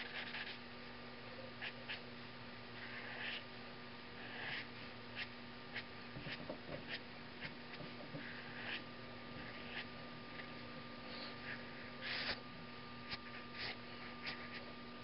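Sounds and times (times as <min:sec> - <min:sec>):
marker scratching across paper: 0:00.0 - 0:00.6, 0:01.6 - 0:02.0, 0:02.8 - 0:03.5, 0:04.2 - 0:08.8, 0:09.4 - 0:10.5, 0:12.0 - 0:12.4, 0:13.1 - 0:14.7
steady low hum: 0:00.0 - 0:15.0.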